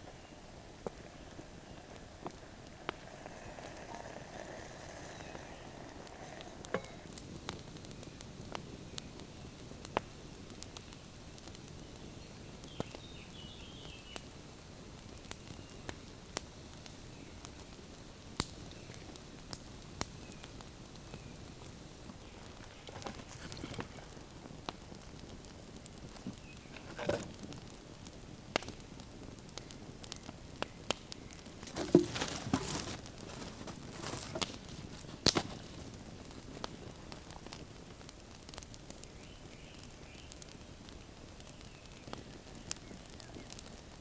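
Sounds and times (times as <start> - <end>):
campfire crackling: 0.0 - 44.0
sticks laid on fire: 0.8 - 9.2, 22.1 - 25.1, 25.8 - 27.8, 29.5 - 39.1.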